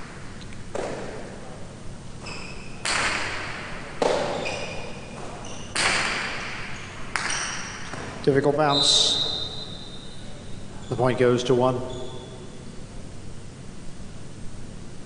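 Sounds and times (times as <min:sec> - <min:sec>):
shoe squeaks on court floor: 0:02.2 - 0:03.3, 0:04.0 - 0:11.1, 0:11.8 - 0:12.7
ball cracking off walls: 0:02.8 - 0:04.5, 0:05.2 - 0:08.2.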